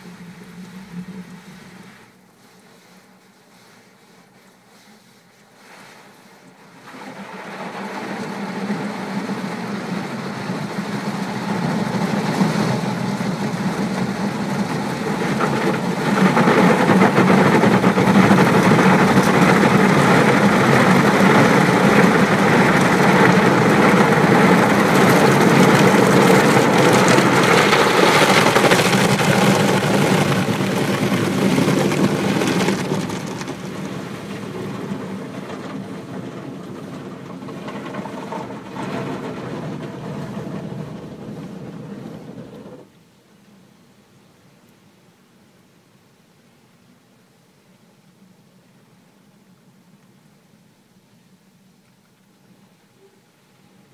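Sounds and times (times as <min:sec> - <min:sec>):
water spraying on car: 0:00.0 - 0:42.6
car wash machine hum: 0:00.0 - 0:42.9.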